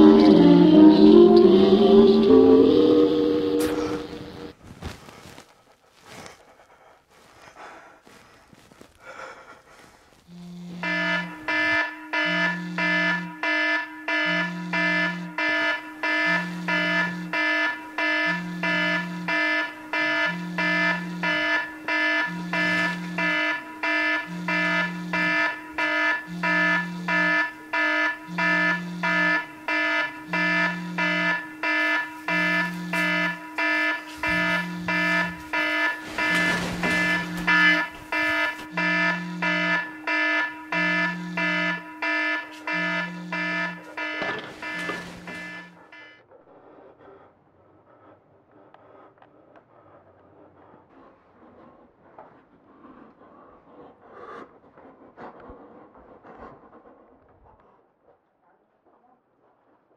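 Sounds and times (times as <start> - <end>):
electronic alarm beeps: 0.0 - 4.5, 10.3 - 46.2
low pulsing tone: 0.0 - 4.5, 20.3 - 23.4, 24.2 - 25.5, 28.2 - 41.9, 42.6 - 44.0.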